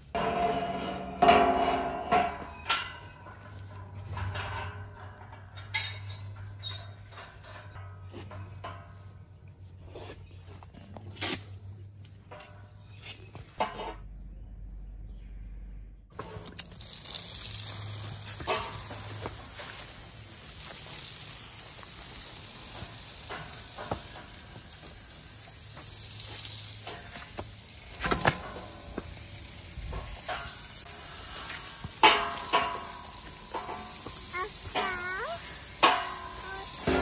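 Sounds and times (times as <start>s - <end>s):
water spraying from hose: 16.2s - 37.0s.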